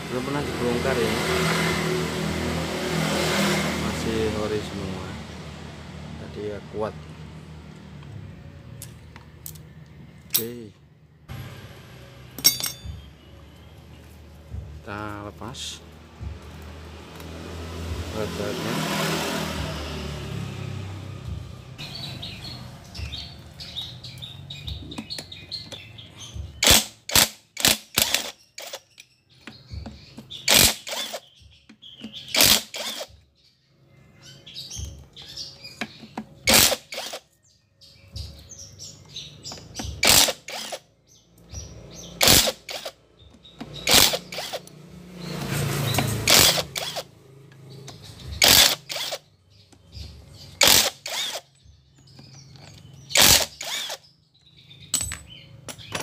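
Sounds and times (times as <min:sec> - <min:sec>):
metal rattling: 0:12.4 - 0:13.0.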